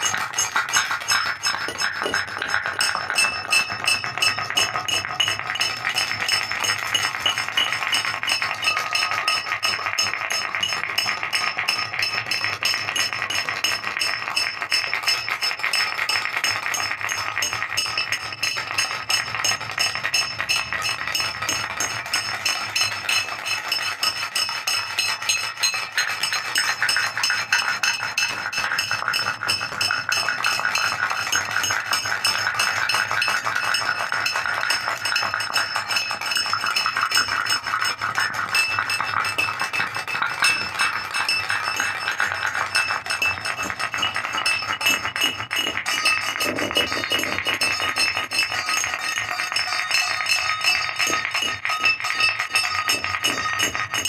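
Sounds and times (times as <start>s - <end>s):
rapid clicks and ticks: 0.0s - 54.0s
steady high tones: 17.4s - 54.0s.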